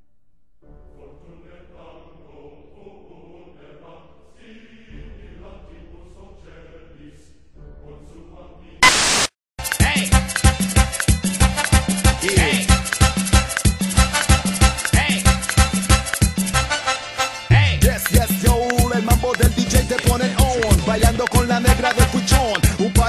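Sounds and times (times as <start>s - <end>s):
soft choral background music: 0.7s - 8.8s
loud burst of noise: 8.8s - 9.4s
dance music with strong beat: 9.6s - 16.6s, 17.7s - 23.0s.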